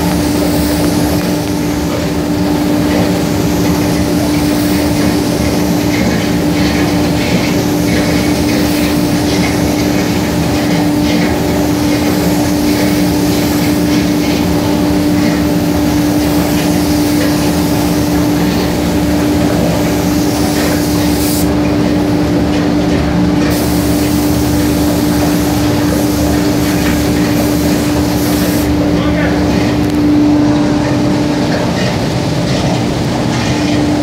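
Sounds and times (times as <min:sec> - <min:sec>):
spray gun hissing: 0:00.0 - 0:21.7, 0:23.4 - 0:28.8
loud machine hum: 0:00.0 - 0:34.0.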